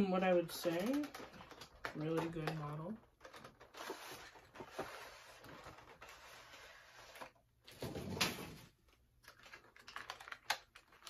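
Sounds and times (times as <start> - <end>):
packaging rustling: 0.6 - 7.9, 8.9 - 11.0
packaging scrape: 3.2 - 7.4.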